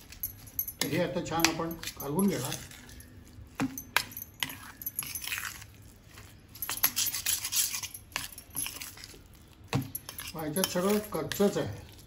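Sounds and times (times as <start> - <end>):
spoon clinking against bowl: 0.1 - 5.6, 9.8 - 11.6
spoon scraping in steel bowl: 0.8 - 9.2, 9.8 - 11.8.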